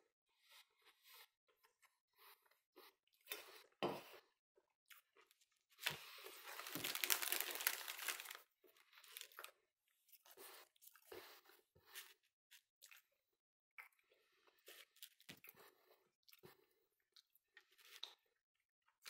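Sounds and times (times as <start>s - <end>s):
plastic wrapper crinkling: 5.8s - 9.5s.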